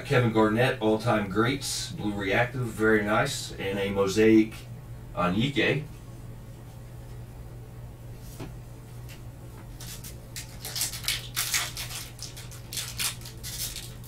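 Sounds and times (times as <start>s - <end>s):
faint low hum: 0.0s - 14.0s
foil wrapper crinkling and tearing: 9.8s - 14.0s.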